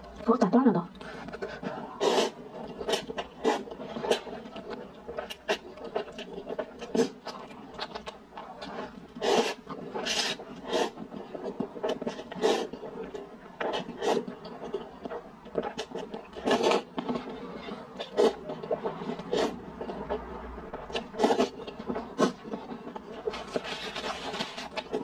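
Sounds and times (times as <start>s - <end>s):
wet chewing clicks: 0.9s - 25.0s
person slurping noodles: 1.3s - 4.4s, 5.1s - 7.2s, 8.6s - 13.0s, 13.6s - 14.4s, 15.7s - 20.1s, 20.9s - 22.5s.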